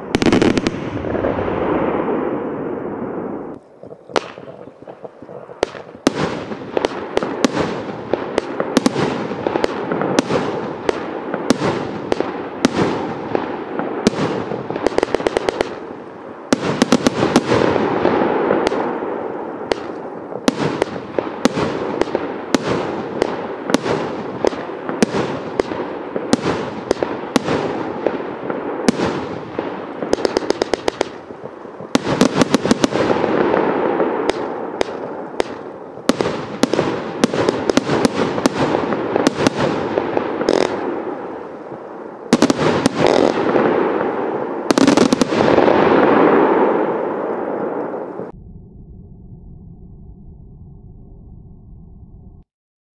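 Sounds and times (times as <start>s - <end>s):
firework bangs: 0.0s - 48.3s
rapid firework pops: 3.8s - 15.8s, 19.7s - 28.2s, 28.9s - 33.6s, 34.2s - 40.9s, 42.3s - 43.8s.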